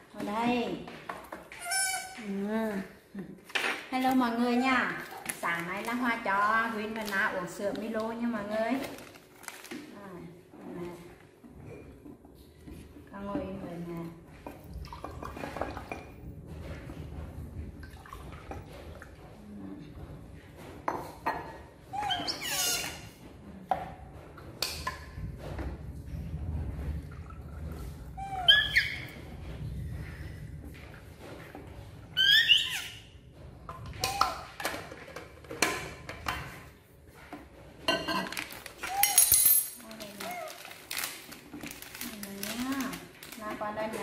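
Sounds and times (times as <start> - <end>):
baby monkey squealing: 1.6 - 2.2, 21.9 - 23.0, 28.2 - 29.2, 32.2 - 33.1.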